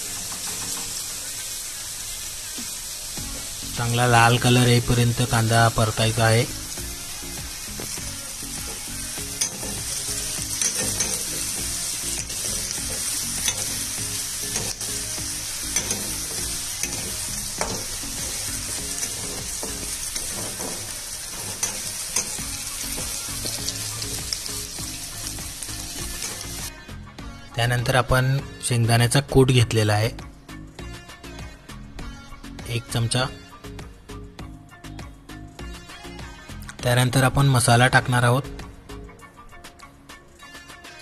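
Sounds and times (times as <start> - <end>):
onions sizzling in hot oil: 0.0 - 26.7
metal spatula scraping a pan: 8.6 - 24.0.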